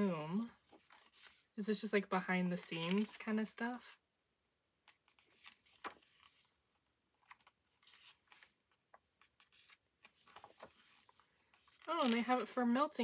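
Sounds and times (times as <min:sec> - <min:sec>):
book pages turning: 0:00.6 - 0:01.6, 0:02.5 - 0:03.4, 0:04.9 - 0:12.8.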